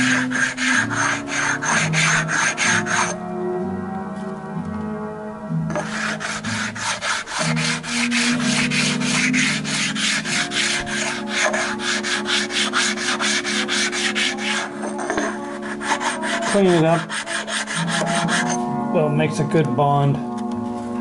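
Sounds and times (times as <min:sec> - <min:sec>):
stone rasping on metal: 0:00.0 - 0:03.2, 0:05.7 - 0:18.6.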